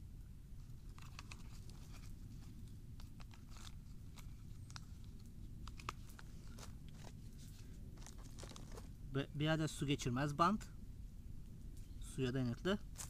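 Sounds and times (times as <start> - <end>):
campfire crackling: 0.0 - 9.2
low background rumble: 0.0 - 13.0.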